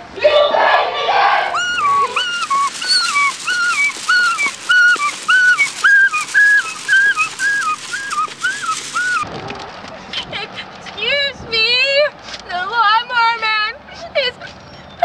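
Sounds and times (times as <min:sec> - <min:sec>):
person imitating siren: 0:01.6 - 0:09.2.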